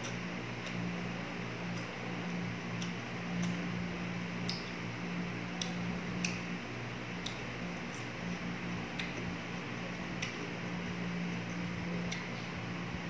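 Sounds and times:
low electric hum: 0.0 - 13.0
chewing with mouth clicks: 4.4 - 4.8, 7.2 - 8.2, 8.8 - 10.7.

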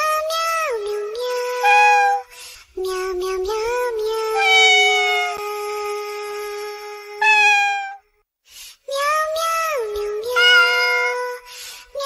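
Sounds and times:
meowing voice singing: 1.0 - 2.2, 3.1 - 5.4, 7.2 - 8.0, 10.0 - 11.3.

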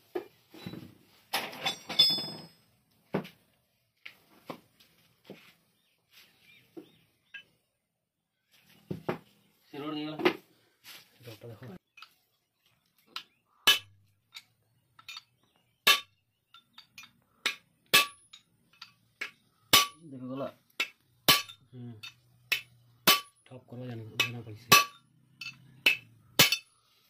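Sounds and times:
hammer striking steel rod: 15.8 - 20.0, 20.8 - 23.5, 24.2 - 26.8.

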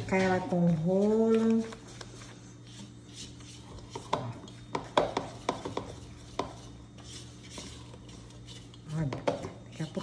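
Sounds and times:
dough stirring: 0.0 - 10.0
spatula knocking and scraping bowl: 2.7 - 10.0.

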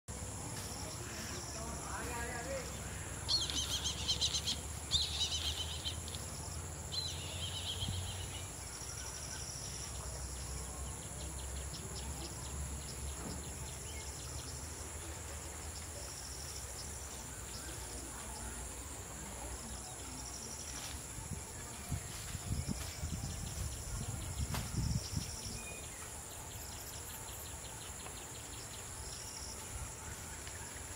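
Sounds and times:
insects calling with trills: 0.1 - 30.9
bird chirping: 0.7 - 18.8.

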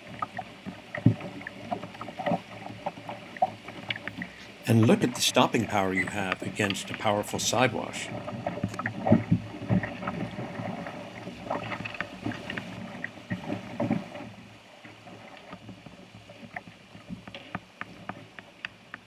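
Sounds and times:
rapids running: 0.0 - 14.3
water slapping against hull: 0.0 - 19.0.

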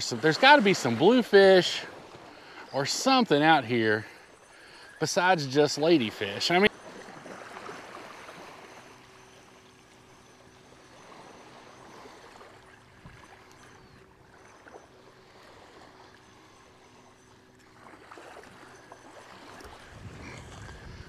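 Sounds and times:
small waves on sandy shore: 0.0 - 21.0.

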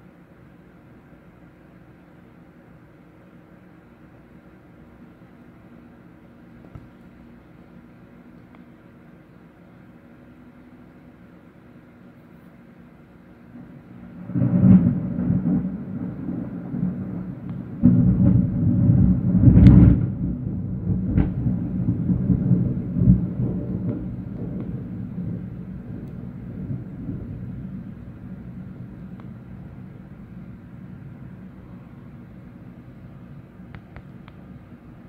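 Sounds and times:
thunder rumbling and cracking: 13.6 - 34.7.

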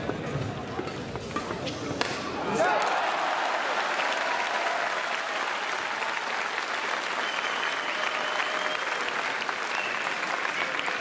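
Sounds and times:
crowd clapping: 2.7 - 11.0.

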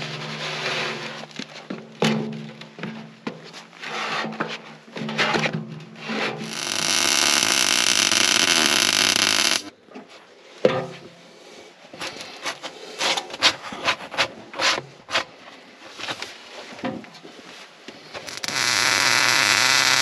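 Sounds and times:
loud steady machine noise: 6.4 - 9.7.

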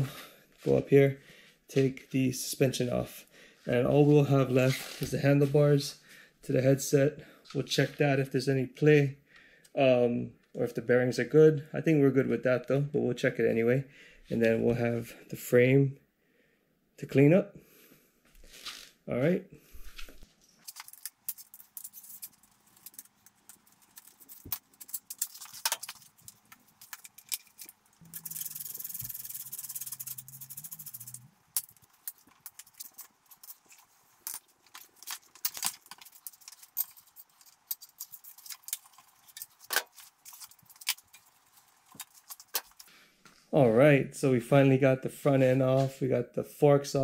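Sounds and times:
tools and metal parts rattling: 20.6 - 42.9.

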